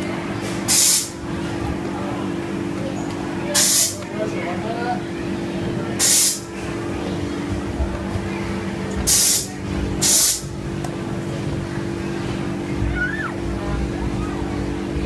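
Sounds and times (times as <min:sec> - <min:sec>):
low mechanical hum: 0:00.0 - 0:15.0
loud hissing bursts: 0:00.7 - 0:01.2, 0:03.6 - 0:04.0, 0:06.0 - 0:06.4, 0:09.1 - 0:10.5.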